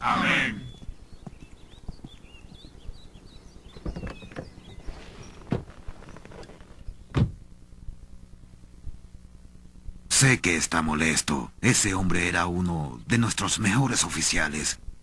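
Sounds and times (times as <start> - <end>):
faint birds chirping: 0.0 - 14.9
footsteps and knocks: 3.7 - 7.4.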